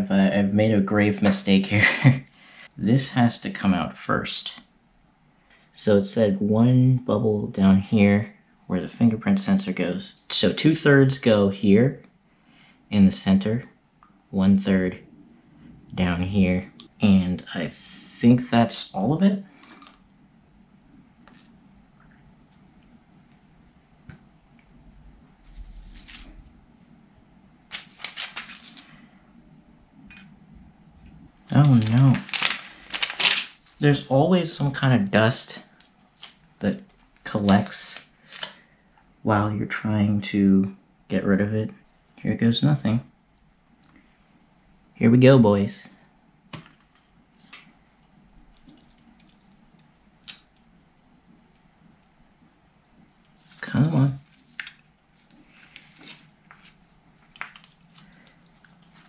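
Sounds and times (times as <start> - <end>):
paper and plastic film rustling: 25.4 - 26.5, 27.7 - 29.0, 31.4 - 34.0, 35.6 - 38.6, 53.4 - 59.0.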